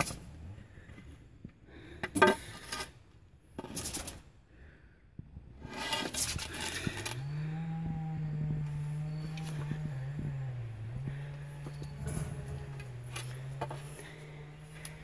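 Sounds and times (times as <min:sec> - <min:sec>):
stick scraping plastic can: 0:03.6 - 0:04.2, 0:05.6 - 0:07.2
low hum rising in pitch: 0:06.4 - 0:15.0.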